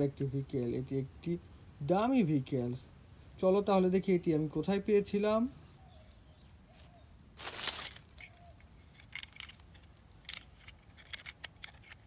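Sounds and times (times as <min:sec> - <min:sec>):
dry leaves rustling: 0:06.0 - 0:11.2.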